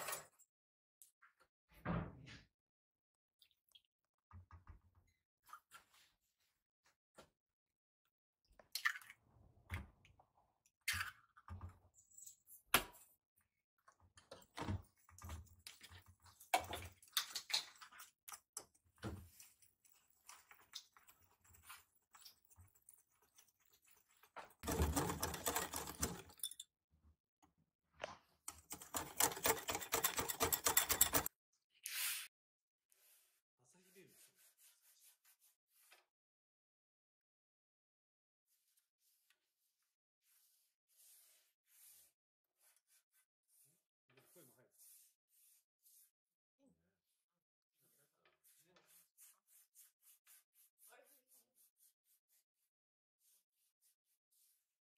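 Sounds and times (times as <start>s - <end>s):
whisk beating batter in bowl: 24.6s - 26.2s, 28.5s - 31.3s.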